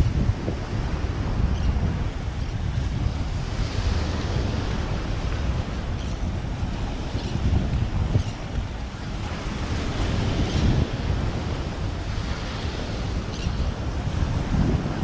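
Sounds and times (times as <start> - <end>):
surf washing onto beach: 0.0 - 15.0
wind buffeting microphone: 0.0 - 15.0.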